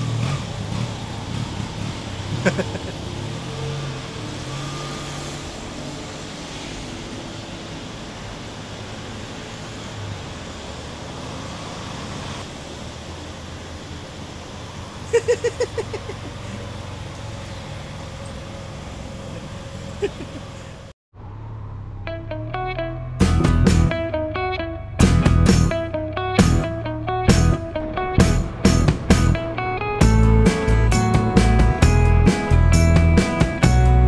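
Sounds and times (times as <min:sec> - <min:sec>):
motor scooter engine: 0:00.0 - 0:06.4, 0:14.8 - 0:20.9
road traffic: 0:00.0 - 0:34.0.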